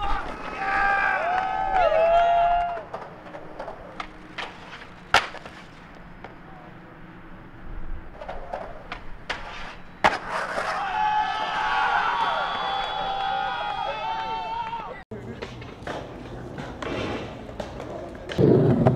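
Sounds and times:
skateboard wheel noise: 0.0s - 18.9s
skateboard clacks on concrete: 2.6s - 6.4s, 15.2s - 18.9s.

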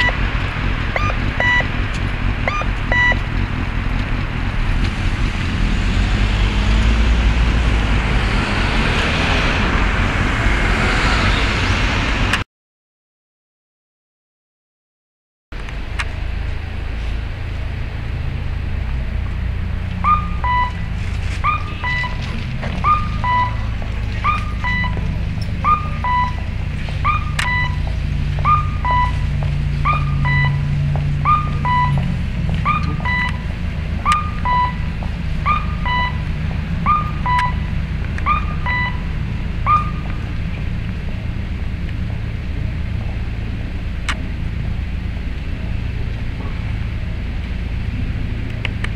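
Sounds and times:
electronic cuckoo tone signal: 0.0s - 0.2s, 1.0s - 1.7s, 2.5s - 3.2s, 20.0s - 20.8s, 21.4s - 22.2s, 22.8s - 25.0s, 25.6s - 26.4s, 27.0s - 27.8s, 28.4s - 32.0s, 32.6s - 33.4s, 36.8s - 40.1s
low traffic rumble: 0.0s - 12.4s, 15.5s - 48.9s.

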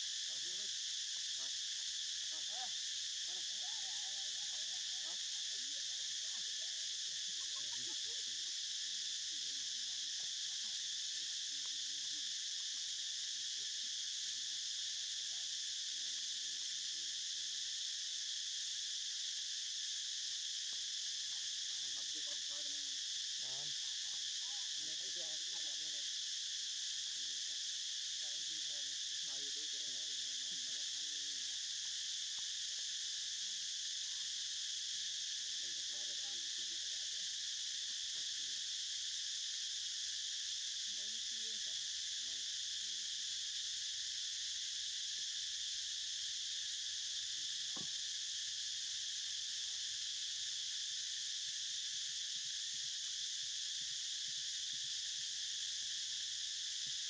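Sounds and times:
insect chorus buzzing: 0.0s - 57.0s.

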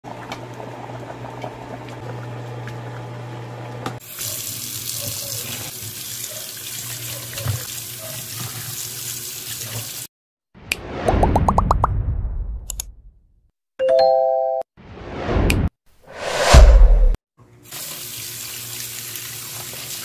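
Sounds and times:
tap water running into metal basin: 3.8s - 10.1s.

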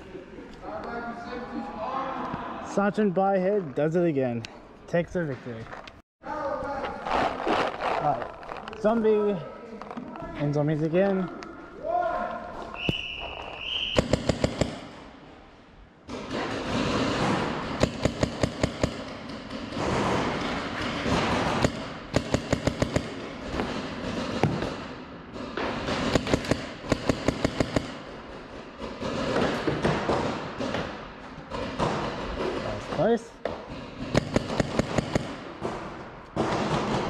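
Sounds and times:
paintball markers firing: 13.9s - 15.0s, 16.3s - 24.9s, 25.8s - 28.1s, 34.0s - 37.0s.

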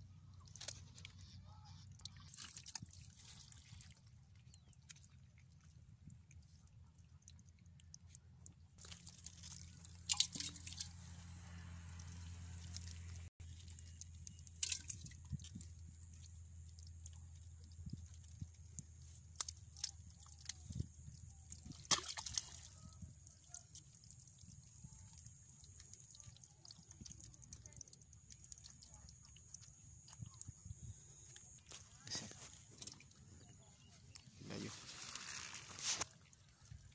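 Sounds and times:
wet mud squelching and sloshing: 0.1s - 36.9s
low steady hum: 4.5s - 35.0s
fish flopping: 8.8s - 24.4s.

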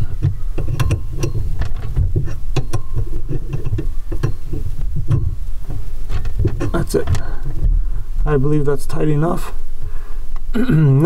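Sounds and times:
wrench clicking and scraping on nut: 0.0s - 7.4s
low rumble: 0.0s - 8.7s.

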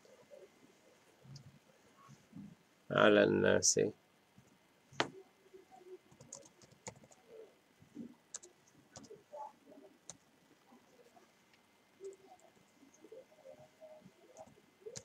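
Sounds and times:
keyboard and mouse clicks: 6.1s - 7.2s, 8.0s - 9.2s, 14.3s - 15.0s.

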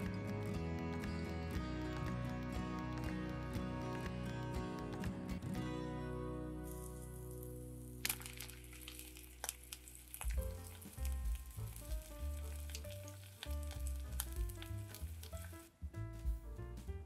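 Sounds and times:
background music: 0.0s - 17.0s
mushrooms sizzling in a frying pan: 6.7s - 15.6s.

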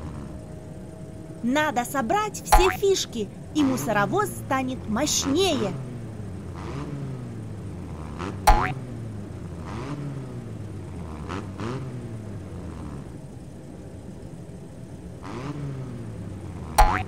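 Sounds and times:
cartoon truck engine revving: 1.4s - 13.1s, 15.2s - 17.0s.

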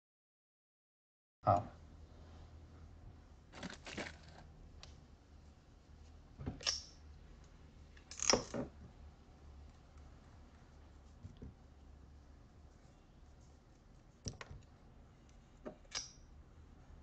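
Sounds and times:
rustling handling sounds: 3.5s - 4.5s, 9.6s - 14.3s.

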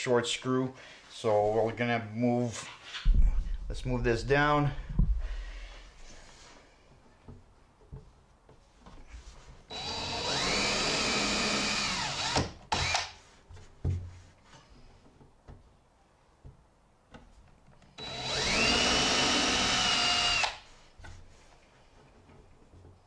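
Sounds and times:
drill motor whine: 9.7s - 13.1s, 18.0s - 20.6s.

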